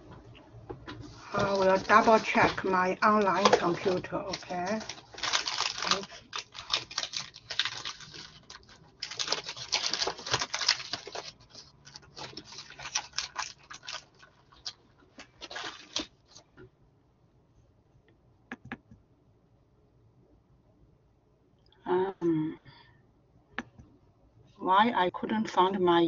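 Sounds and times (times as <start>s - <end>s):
rustling and clattering objects: 0.0s - 16.7s.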